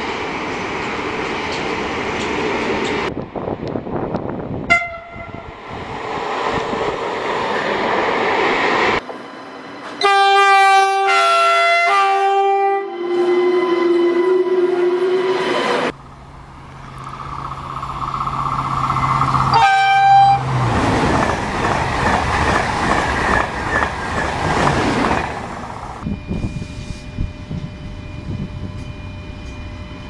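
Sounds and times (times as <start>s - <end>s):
rolling train noise: 0.0s - 30.0s
train horn: 4.7s - 5.6s, 10.0s - 15.4s, 19.5s - 20.6s.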